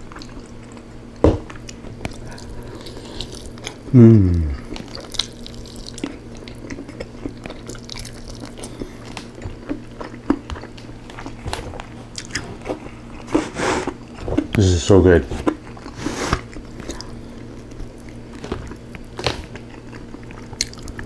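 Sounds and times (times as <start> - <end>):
wet chewing: 1.5 - 14.7, 15.3 - 21.0
person humming mmm: 2.3 - 4.8.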